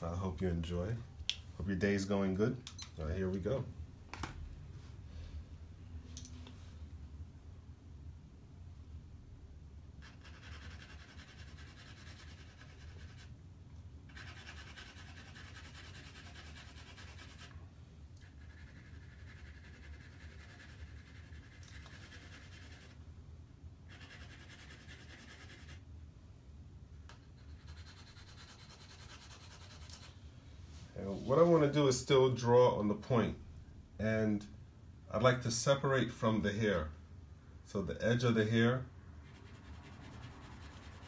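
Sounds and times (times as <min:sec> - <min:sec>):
pencil shading on paper: 0:10.0 - 0:13.3, 0:14.1 - 0:17.5, 0:18.2 - 0:22.9, 0:23.9 - 0:25.8, 0:27.4 - 0:30.1, 0:39.2 - 0:41.0.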